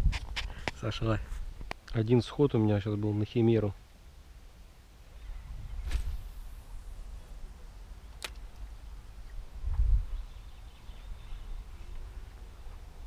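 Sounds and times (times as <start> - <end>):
wind rumble on microphone: 0.0 - 1.7, 5.3 - 7.5, 9.4 - 10.4
soft swish: 5.7 - 7.1
sharp click: 8.2 - 8.4.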